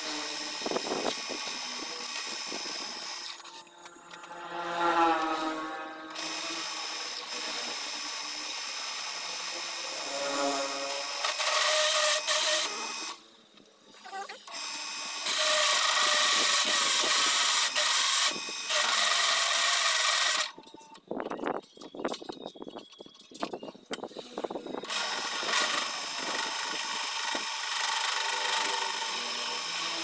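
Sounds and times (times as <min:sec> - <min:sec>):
hole saw grinding metal: 0:00.0 - 0:13.2, 0:14.0 - 0:20.6, 0:24.1 - 0:30.0.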